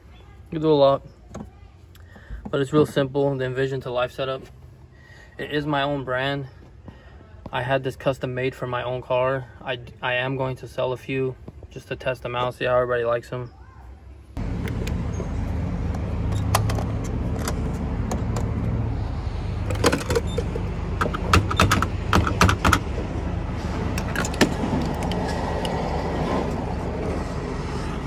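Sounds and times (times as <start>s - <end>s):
sharp clicks and rattles: 19.6s - 23.1s, 23.7s - 25.8s.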